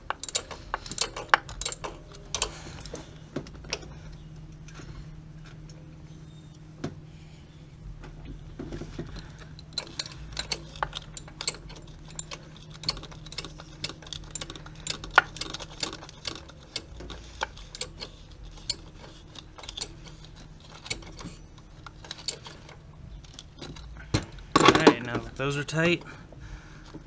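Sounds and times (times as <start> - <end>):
ratcheting wrench clicking: 0.0 - 3.0, 9.1 - 23.9.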